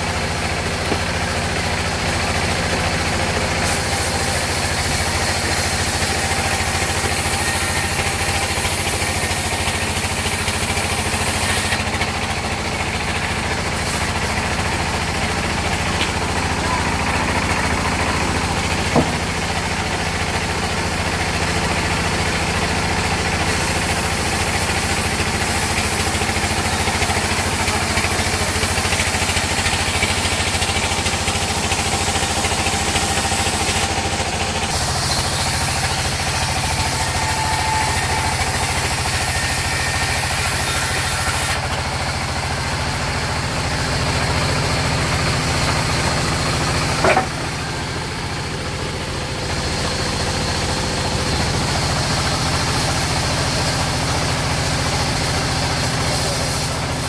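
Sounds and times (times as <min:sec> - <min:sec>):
saw blade hissing through wood: 0:03.5 - 0:12.0, 0:13.4 - 0:20.0, 0:23.0 - 0:34.0, 0:34.6 - 0:41.7, 0:48.7 - 0:57.0
band saw drive humming: 0:03.8 - 0:20.8
sharp knock: 0:18.9 - 0:19.3.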